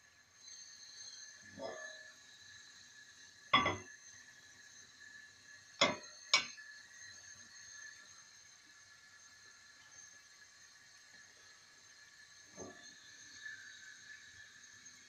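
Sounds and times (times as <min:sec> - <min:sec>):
metal wok clanking on stove grate: 0:03.6 - 0:03.9, 0:05.8 - 0:06.5.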